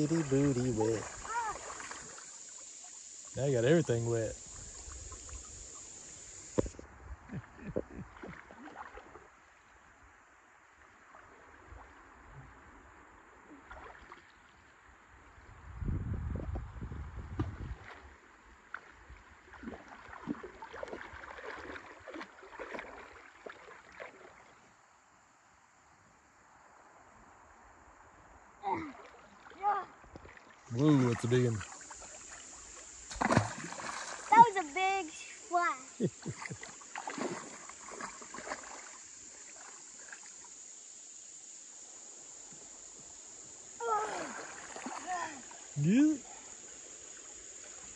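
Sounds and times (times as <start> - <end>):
splashing steps in water: 0.0 - 2.6, 8.0 - 9.3, 17.4 - 24.6, 29.0 - 34.9, 36.1 - 40.4, 43.8 - 46.0
high insect buzz: 0.0 - 6.8, 30.8 - 47.9.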